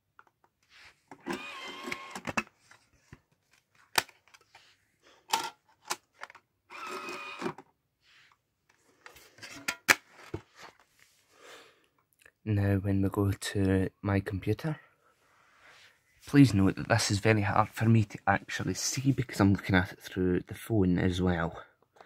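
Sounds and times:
disc tray motor whir: 1.3 - 2.2, 6.7 - 7.6.

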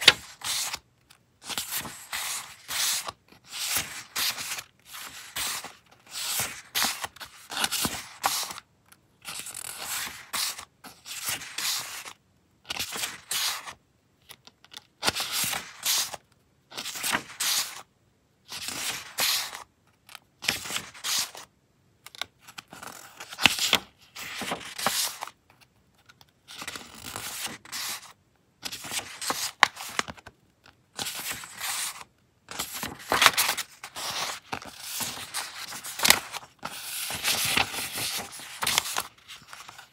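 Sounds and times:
paper rustling and shuffling: 0.0 - 8.6, 9.3 - 13.8, 16.8 - 17.8, 22.8 - 25.3, 26.1 - 30.3, 31.0 - 39.9.

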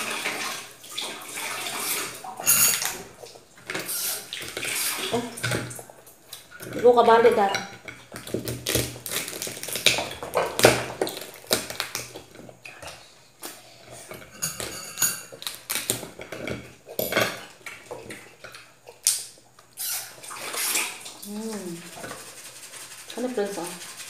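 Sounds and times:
cutlery clinking on plates: 2.4 - 3.1, 14.0 - 18.2
crab shells cracking: 7.9 - 12.6, 15.4 - 16.5.

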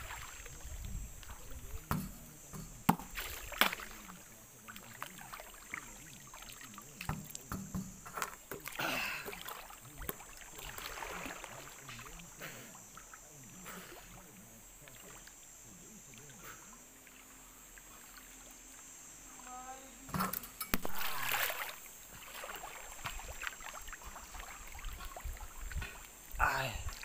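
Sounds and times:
pool water splashing: 0.0 - 27.0
sharp slaps on water: 1.9 - 4.2, 20.7 - 23.6.

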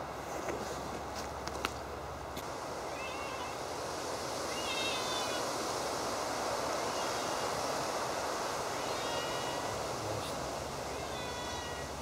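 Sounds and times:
wind or distant surf hiss: 0.0 - 12.0
faint high-pitched chirping: 2.9 - 3.6.

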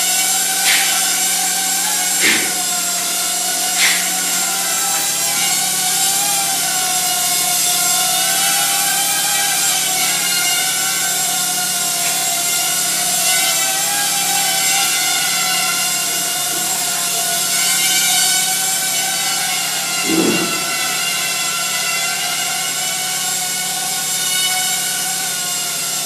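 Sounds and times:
mini quadcopter motors whining: 0.0 - 26.0
short knocks: 2.2 - 2.7, 20.1 - 21.1.

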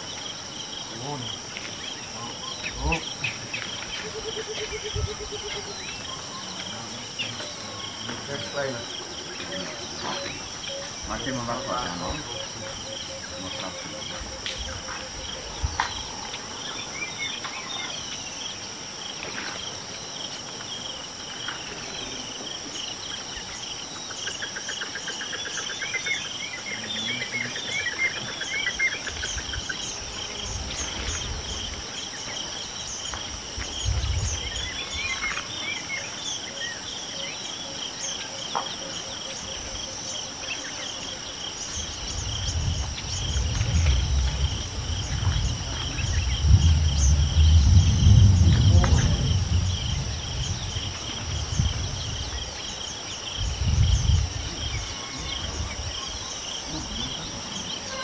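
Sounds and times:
birds chirping: 0.0 - 58.0
insects buzzing: 0.0 - 58.0
low muffled bumps: 42.2 - 52.3.

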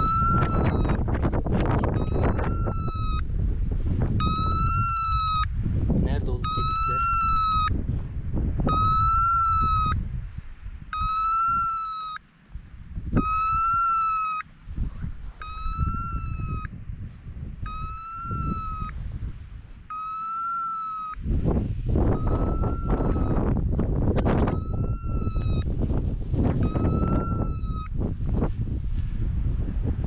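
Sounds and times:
wind rumbling on microphone: 0.0 - 30.0
electronic collar beeps: 2.0 - 3.2, 4.2 - 5.4, 10.9 - 12.1, 17.7 - 18.9, 19.9 - 21.2.

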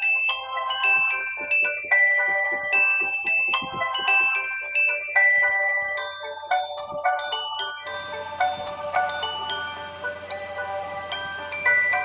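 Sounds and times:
mallet percussion melody: 0.0 - 12.0.

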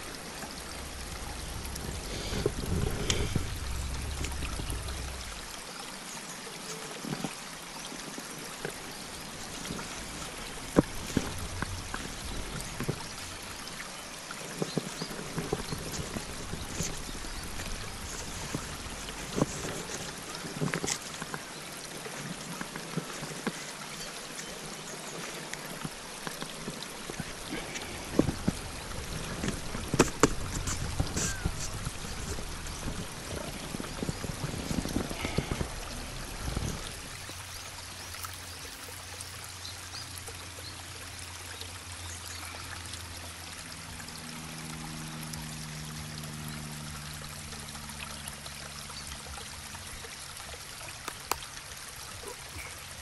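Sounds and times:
low steady hum: 0.0 - 5.6
camp chair clicks and rustles: 14.3 - 21.4, 22.0 - 39.4.

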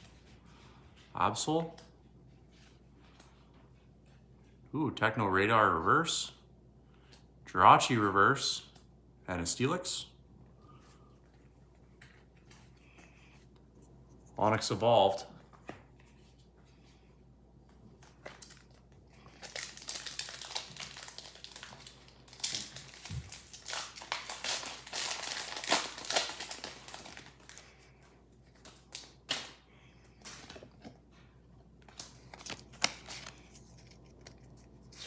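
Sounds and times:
foil wrapper tearing and crinkling: 18.3 - 27.6, 31.9 - 35.0
cards clicking and rustling: 30.2 - 35.0.

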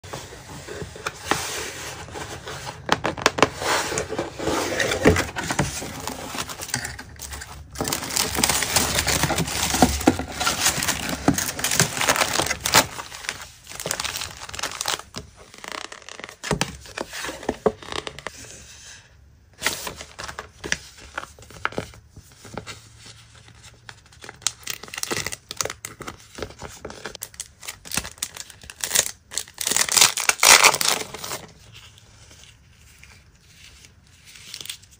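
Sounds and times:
cardboard box and paper opening: 0.1 - 18.9, 19.6 - 34.9
plastic sleeves crinkling: 2.0 - 18.3, 24.0 - 34.9
packaging tearing: 4.4 - 16.4, 27.2 - 31.4.

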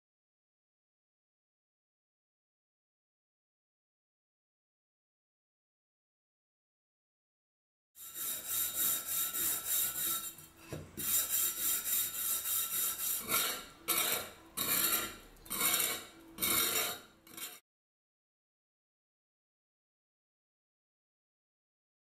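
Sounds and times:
abrasive scrubbing rusty metal: 8.0 - 17.6
metal scraper scraping: 8.0 - 17.6.

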